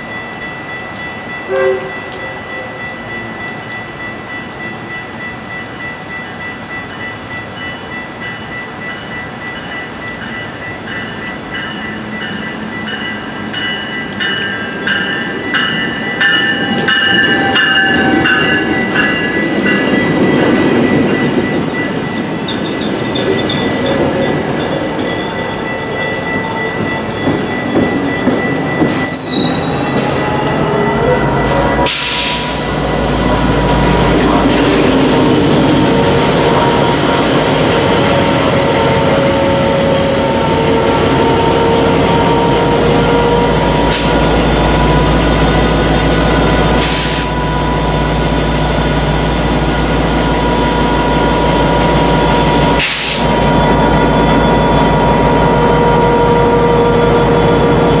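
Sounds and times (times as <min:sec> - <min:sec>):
diesel locomotive rumbling: 0:00.0 - 0:58.0
train wheels and brakes squealing: 0:22.4 - 0:45.6, 0:49.8 - 0:58.0.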